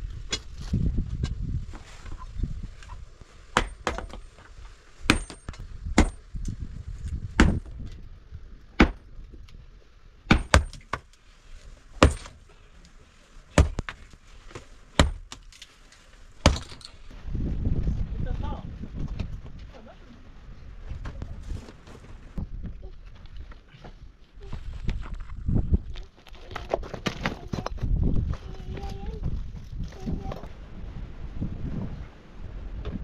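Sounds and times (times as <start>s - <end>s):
iron hammer striking rock: 3.5s - 4.2s, 5.1s - 6.2s, 7.4s - 7.7s, 10.3s - 11.0s, 12.0s - 12.4s, 13.6s - 14.0s, 15.0s - 15.4s, 16.4s - 16.8s.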